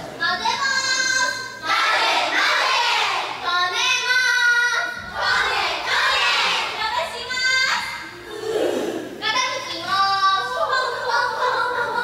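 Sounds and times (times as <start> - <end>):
girls singing: 0.4 - 7.0, 9.8 - 12.0.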